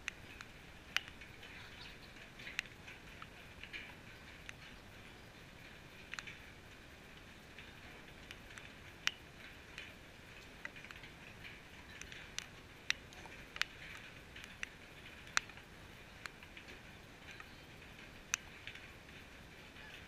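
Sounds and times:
faint outdoor hiss: 0.0 - 20.0
sharp ticks: 0.0 - 20.0.

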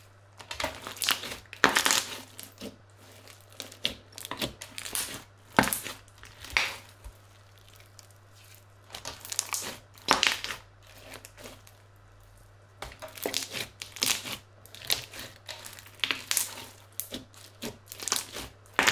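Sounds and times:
crunchy slime squeezed by hand: 0.8 - 11.7.

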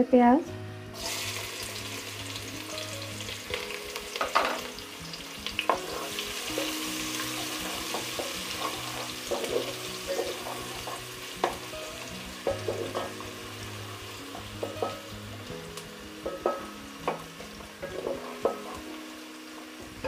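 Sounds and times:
onions sizzling in oil: 0.8 - 20.0
spatula knocking and scraping pot: 7.4 - 11.6, 12.5 - 13.2, 16.2 - 18.8.

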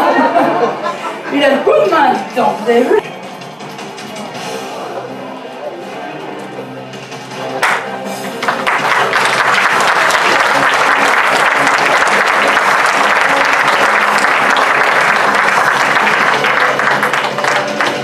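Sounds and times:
faint music: 0.0 - 18.0
audience applauding: 7.6 - 18.0.

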